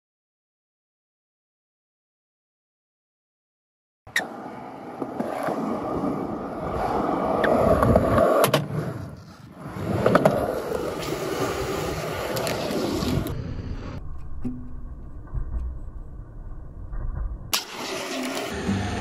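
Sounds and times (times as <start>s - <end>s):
fingerboard rolling on a ramp: 4.1s - 14.0s.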